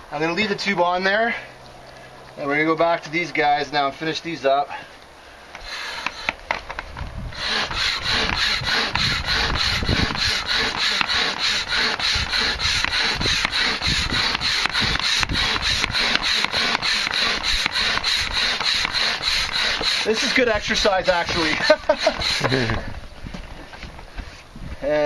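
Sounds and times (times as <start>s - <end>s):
hand air pump rushes: 5.6s - 24.4s.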